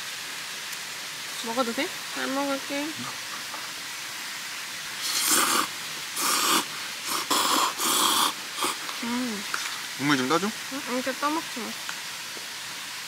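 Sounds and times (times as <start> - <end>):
steady background hiss: 0.0 - 13.0
person slurping noodles: 5.0 - 8.8.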